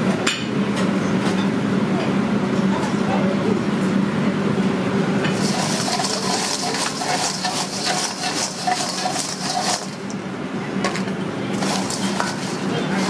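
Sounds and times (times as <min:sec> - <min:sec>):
kitchen hum: 0:00.0 - 0:13.0
fries tossed in a metal bowl: 0:05.3 - 0:10.2, 0:10.9 - 0:13.0.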